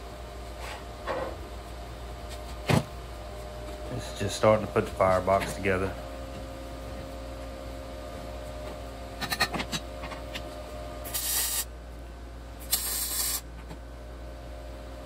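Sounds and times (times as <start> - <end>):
welding hiss and crackle: 11.0 - 11.7, 12.6 - 13.4.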